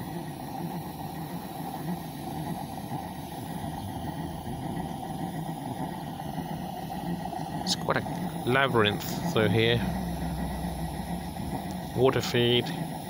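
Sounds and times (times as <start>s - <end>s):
steam locomotive engine and burner: 0.0s - 13.0s.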